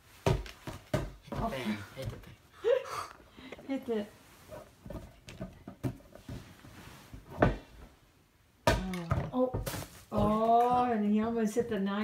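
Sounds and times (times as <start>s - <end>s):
ball bouncing and thudding: 0.2s - 2.3s, 4.8s - 6.6s, 7.3s - 7.7s, 8.6s - 12.0s.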